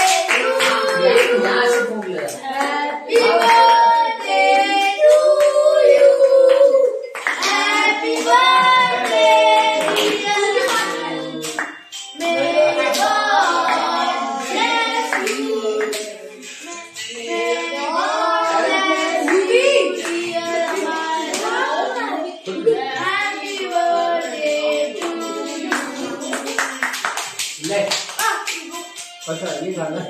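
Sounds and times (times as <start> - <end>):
hand clapping: 0.0 - 3.7, 6.2 - 13.9, 15.1 - 16.9, 25.0 - 29.6
group singing a celebration song: 0.0 - 27.8.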